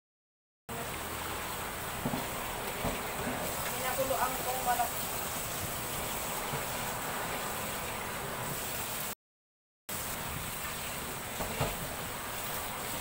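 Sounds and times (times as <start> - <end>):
tap water running into sink: 0.8 - 8.1, 10.1 - 13.0.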